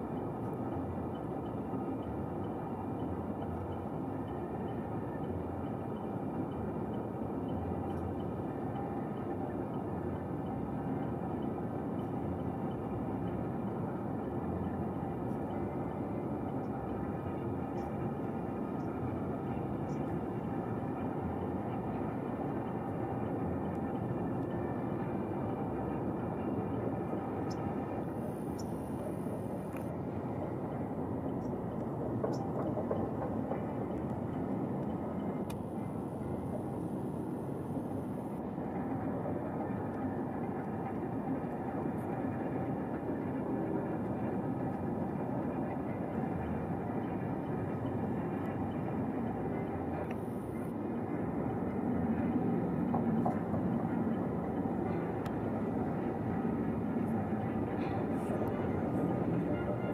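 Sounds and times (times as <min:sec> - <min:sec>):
distant jet engines roaring: 0:00.0 - 0:59.9.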